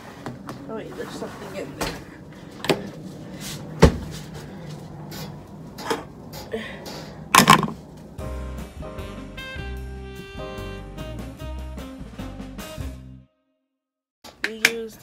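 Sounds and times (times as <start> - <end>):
plastic container set down: 7.4 - 7.8.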